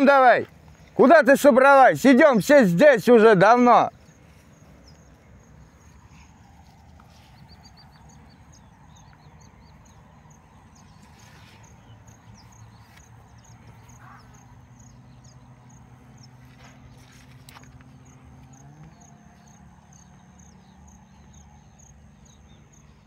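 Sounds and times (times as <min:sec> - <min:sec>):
small birds chirping: 0:00.0 - 0:23.0
footsteps through grass: 0:03.9 - 0:08.4, 0:10.7 - 0:14.4, 0:16.1 - 0:18.0.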